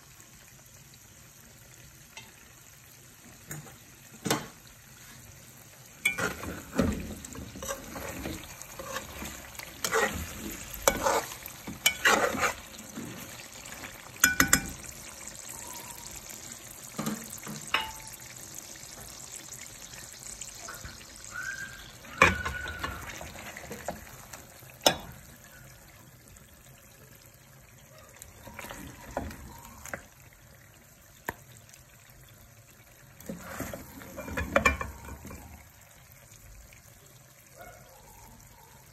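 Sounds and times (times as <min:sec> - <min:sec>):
meat sizzling in hot oil: 0:00.0 - 0:38.9
spoon scraping a pot: 0:06.0 - 0:14.9, 0:33.2 - 0:35.5.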